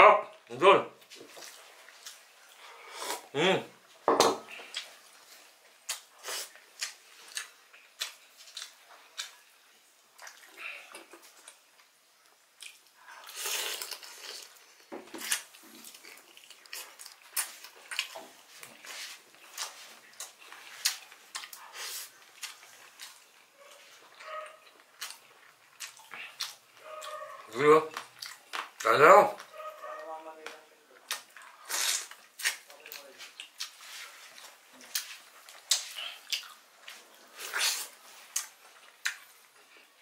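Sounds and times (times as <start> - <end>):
chewing and lip-smacking: 5.8 - 9.6, 10.2 - 14.6, 15.2 - 28.8, 31.0 - 40.0.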